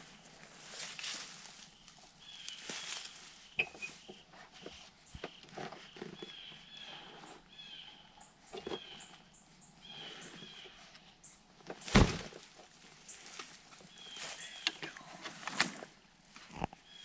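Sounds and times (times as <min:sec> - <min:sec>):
small birds chirping: 0:01.5 - 0:11.5, 0:13.0 - 0:15.2.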